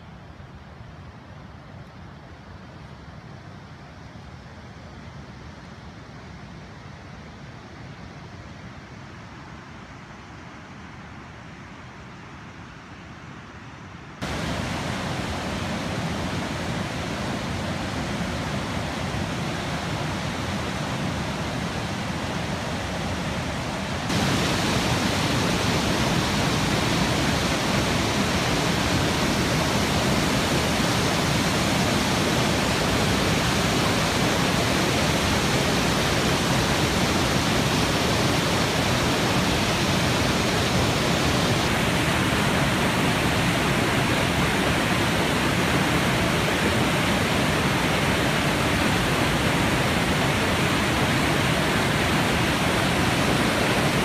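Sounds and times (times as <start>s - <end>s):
floodwater rushing through rapids: 14.2s - 54.0s.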